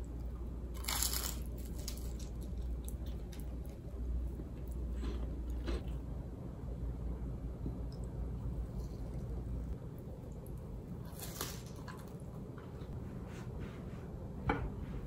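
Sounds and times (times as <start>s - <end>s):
crunchy toast being chewed: 0.7s - 4.0s.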